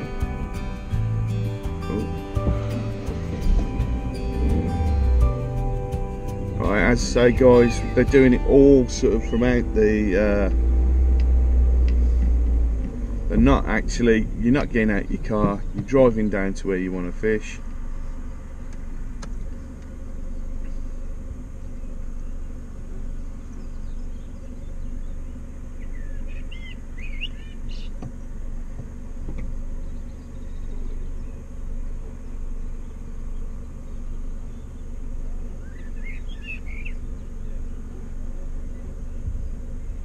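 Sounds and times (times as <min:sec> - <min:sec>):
car engine and tyres rumbling: 0:00.0 - 0:40.0
bird chirping: 0:23.4 - 0:28.0, 0:29.8 - 0:37.7.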